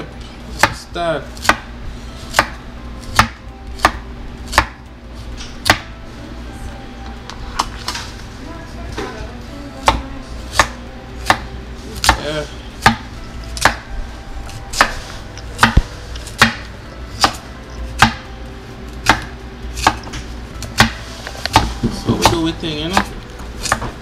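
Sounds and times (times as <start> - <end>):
knife chopping on wooden board: 0.6 - 1.7, 2.3 - 4.8, 5.6 - 5.9, 9.8 - 13.9, 14.7 - 15.0, 15.6 - 17.4, 18.0 - 18.2, 19.0 - 24.0.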